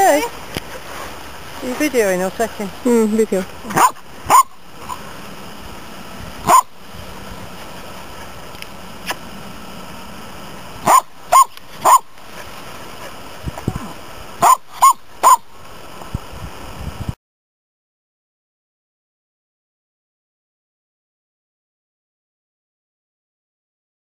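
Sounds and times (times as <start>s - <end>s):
dog barking: 3.7s - 5.0s, 6.4s - 6.7s, 10.8s - 12.1s, 14.4s - 15.4s.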